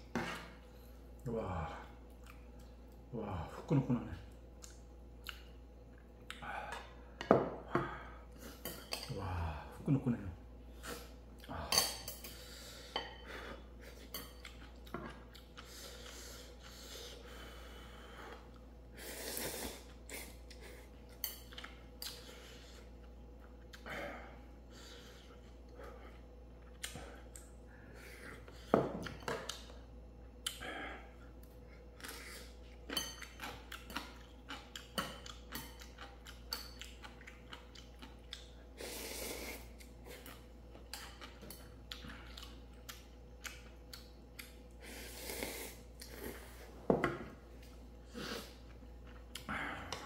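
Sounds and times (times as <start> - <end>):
person chewing: 1.9 - 3.1, 4.3 - 7.0, 13.6 - 17.2, 24.9 - 46.8, 47.4 - 50.0.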